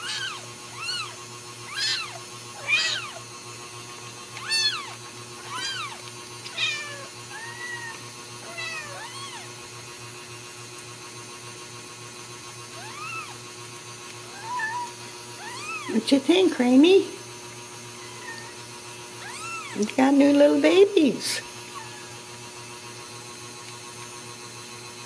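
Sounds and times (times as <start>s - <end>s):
cat meowing: 0.0s - 3.2s, 4.4s - 9.5s, 12.8s - 13.4s, 14.3s - 15.9s, 18.0s - 18.6s, 19.2s - 19.8s, 21.7s - 22.2s.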